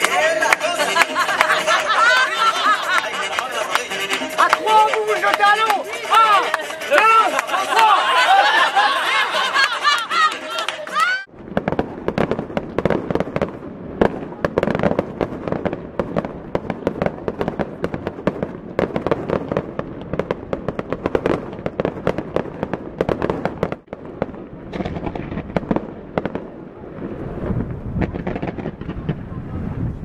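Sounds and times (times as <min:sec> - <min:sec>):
fireworks bangs and crackles: 0:11.3 - 0:30.0.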